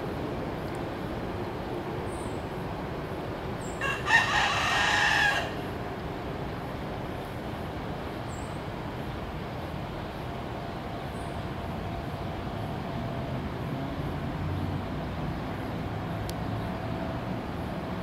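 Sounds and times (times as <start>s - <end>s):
rooster crowing: 3.8s - 5.8s.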